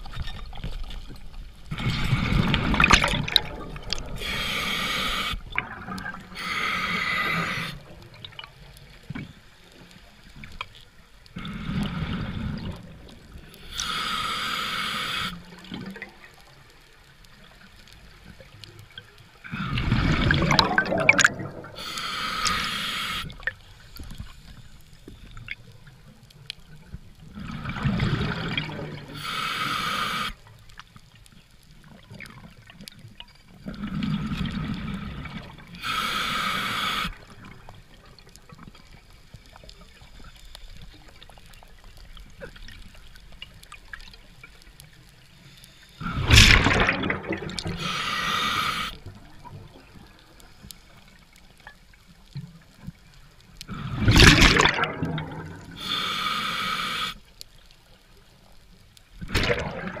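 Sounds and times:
bubbling exhale underwater: 1.7s - 4.4s, 5.2s - 8.1s, 19.5s - 22.6s, 27.4s - 29.3s, 46.0s - 49.5s, 53.7s - 56.1s, 59.2s - 60.0s
hissing inhale through regulator: 1.7s - 8.1s, 11.4s - 12.8s, 13.4s - 15.7s, 19.4s - 25.4s, 27.4s - 30.5s, 34.0s - 37.5s, 45.2s - 46.8s, 47.6s - 49.2s, 53.6s - 54.4s, 55.6s - 57.4s.

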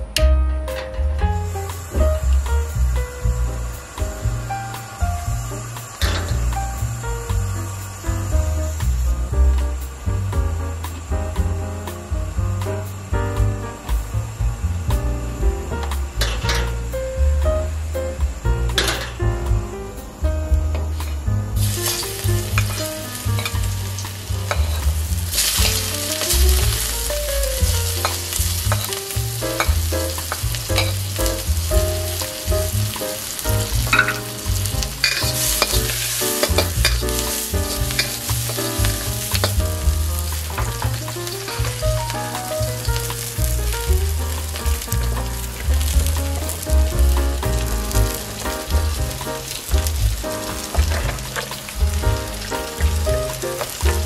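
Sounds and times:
garlic and onion sizzling: 0.0s - 54.0s
metal spatula scraping wok: 27.7s - 31.2s, 32.1s - 39.6s.

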